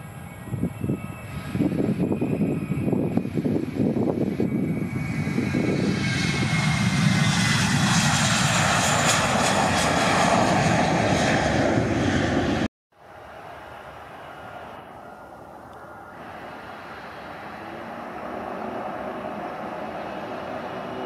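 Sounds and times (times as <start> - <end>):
jet engines roaring at takeoff: 0.0 - 21.0
faint steady engine noise: 13.0 - 21.0.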